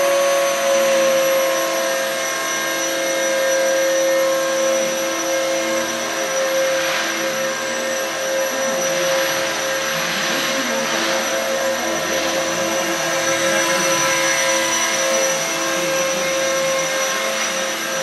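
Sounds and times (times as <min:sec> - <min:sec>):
model helicopter whining: 0:00.0 - 0:18.0.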